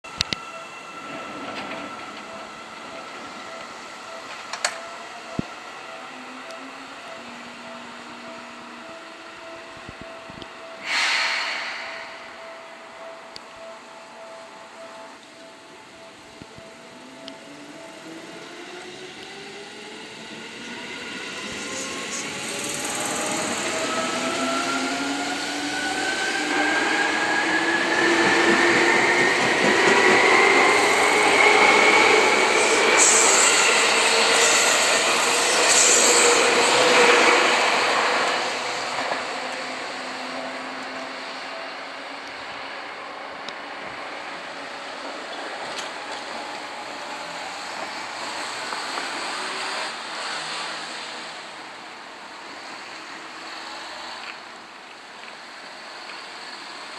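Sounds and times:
train wheels rumbling on rails: 16.4 - 42.6.

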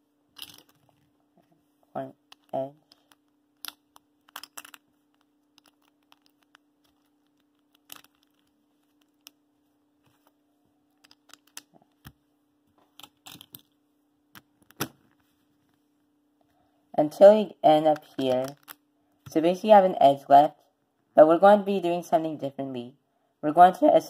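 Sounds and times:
faint steady hum: 0.0 - 24.0
plastic puzzle cube pieces clicking: 0.4 - 0.8, 2.3 - 9.4, 11.0 - 12.2, 12.9 - 13.7, 18.0 - 18.8.

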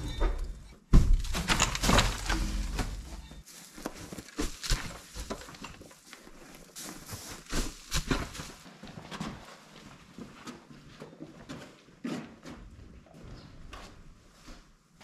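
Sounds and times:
soft thuds and knocks: 0.0 - 3.4
hay rustling down a chute: 1.7 - 8.6.

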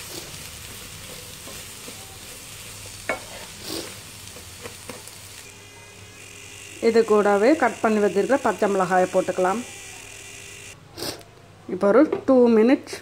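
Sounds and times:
food sizzling in a pan: 0.0 - 10.8
spatula scraping and tapping pan: 0.1 - 5.2.

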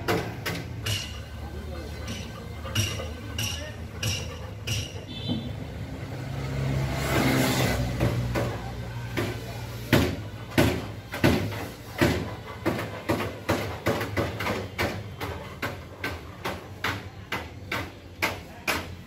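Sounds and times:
sharp ringing knocks: 0.1 - 1.4, 2.0 - 5.5.

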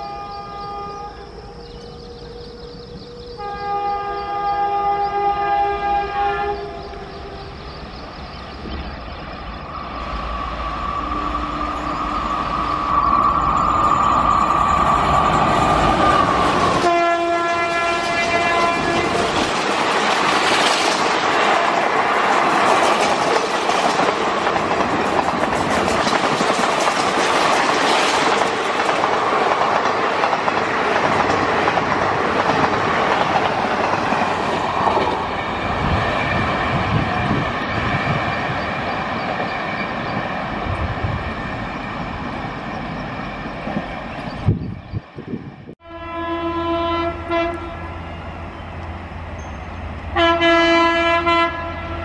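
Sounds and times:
train horn blasts: 0.0 - 7.5, 11.0 - 13.6, 15.5 - 19.6, 45.8 - 48.4, 50.1 - 52.0
train coaches roaring past: 0.0 - 52.0
wheels clacking over rail joints: 18.0 - 40.8.

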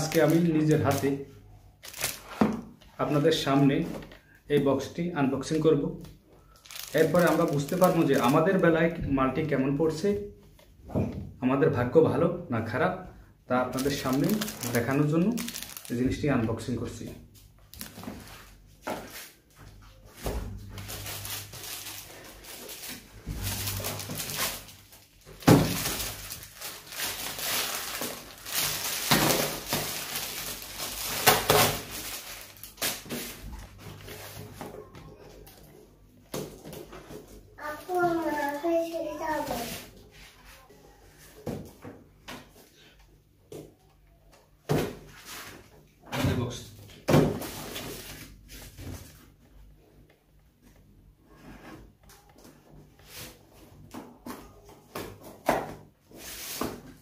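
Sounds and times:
plastic wrapping crinkling and tearing: 0.0 - 1.2, 1.8 - 2.4, 6.4 - 8.6, 13.7 - 16.2, 17.6 - 18.5, 20.6 - 34.2
sharp plastic crackles: 1.8 - 2.8, 6.1 - 8.6, 13.7 - 16.2, 17.6 - 18.2, 20.8 - 33.4.

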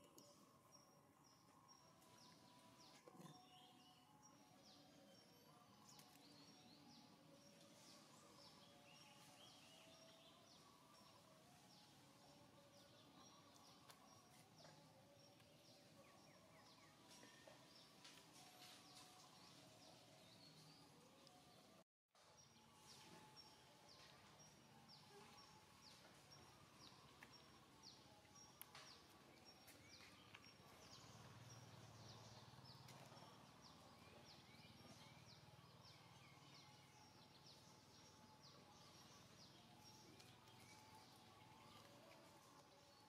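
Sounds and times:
faint outdoor ambience: 0.0 - 43.0.

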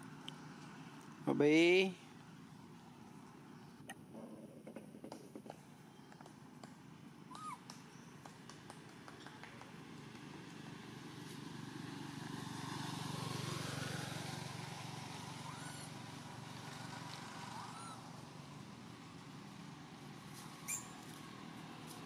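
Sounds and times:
vehicle passing: 9.4 - 22.0
short chirping calls: 20.6 - 21.0.

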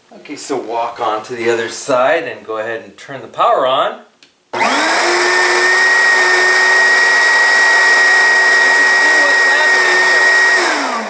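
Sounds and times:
vacuum cleaner whine: 4.6 - 11.0.

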